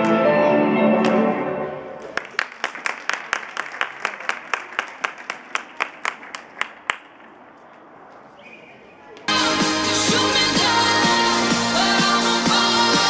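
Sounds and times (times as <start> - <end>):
skating music: 0.0 - 2.2, 9.3 - 13.0
audience applause: 2.0 - 7.1.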